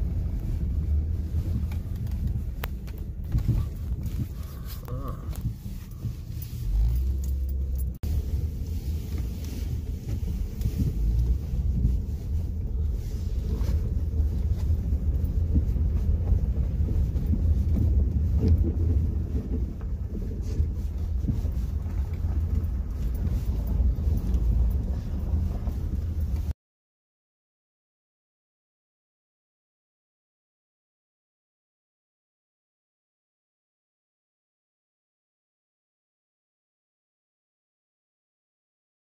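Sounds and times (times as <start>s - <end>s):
vehicle rumbling on rough track: 0.0s - 26.6s.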